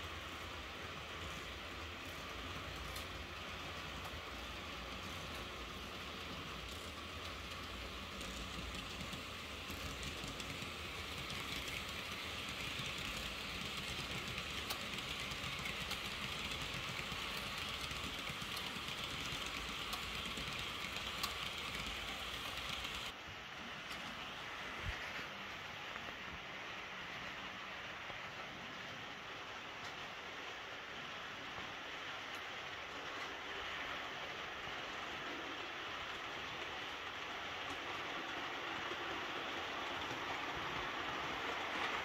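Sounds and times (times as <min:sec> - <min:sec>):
model train rattling on track: 0:00.0 - 0:23.2, 0:23.8 - 0:42.0
faint clicks: 0:04.9 - 0:23.1.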